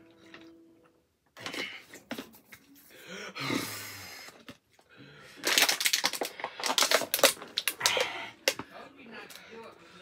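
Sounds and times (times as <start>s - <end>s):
plastic bottle crackling: 5.4s - 8.7s.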